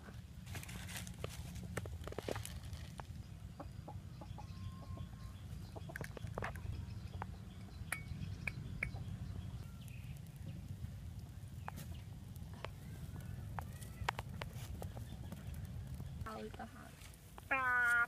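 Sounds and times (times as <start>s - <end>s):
steady low rumble: 0.0s - 17.5s
chickens clucking: 3.3s - 7.4s.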